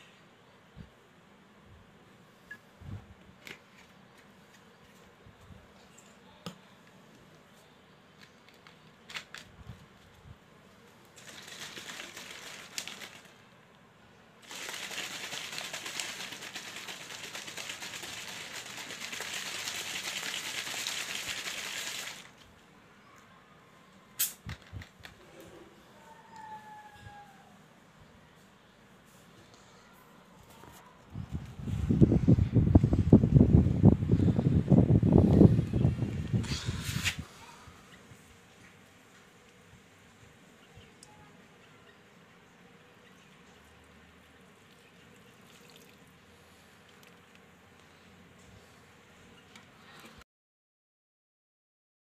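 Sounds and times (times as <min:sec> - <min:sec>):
soda fizzing in bottle: 0:14.4 - 0:22.3.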